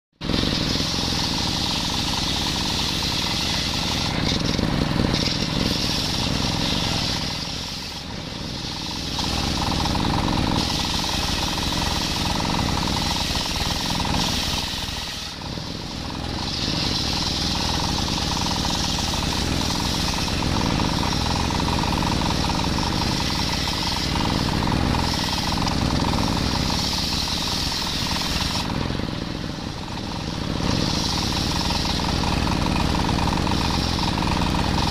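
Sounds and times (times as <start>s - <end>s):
stationary engine running: 0.2s - 34.9s
circular saw ripping log: 8.8s - 28.8s.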